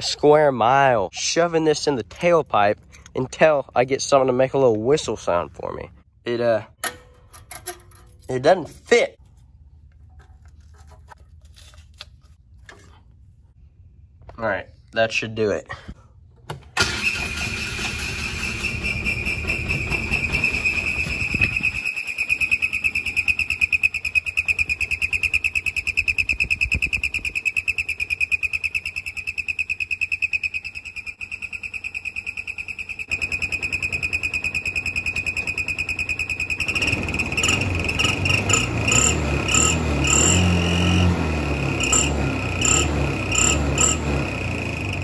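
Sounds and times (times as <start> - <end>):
exhaust whistle whistling: 16.9 - 45.0
engine running: 33.1 - 45.0.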